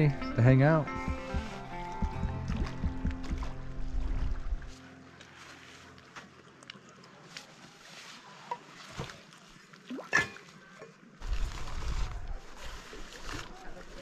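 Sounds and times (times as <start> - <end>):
low rumble: 0.2 - 4.7
backpack rustling: 0.9 - 3.6.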